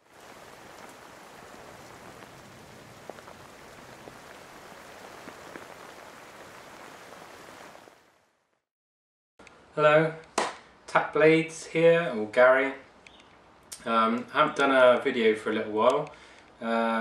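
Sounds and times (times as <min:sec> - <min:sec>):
raindrops ticking: 0:00.0 - 0:08.0
steady rain hiss: 0:00.0 - 0:08.6, 0:10.7 - 0:17.0.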